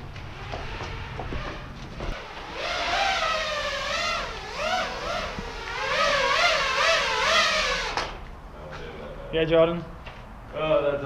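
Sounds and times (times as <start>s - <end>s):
drone motors whining: 0.0s - 8.2s.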